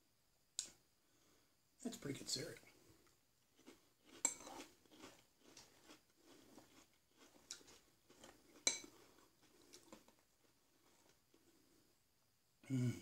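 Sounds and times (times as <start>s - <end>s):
spoon clinking in a ceramic bowl: 8.6s - 8.9s.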